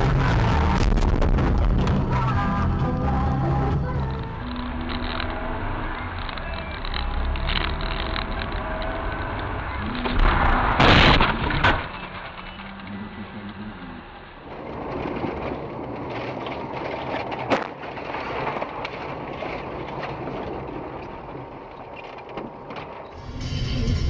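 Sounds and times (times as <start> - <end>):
loud vehicle impact: 9.6 - 13.4.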